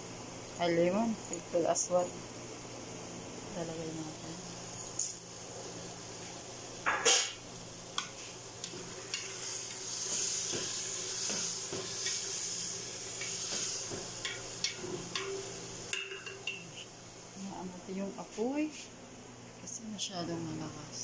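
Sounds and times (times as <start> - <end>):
sauce sizzling in a pot: 3.9 - 17.4
stirring knocks against pot: 13.2 - 16.7.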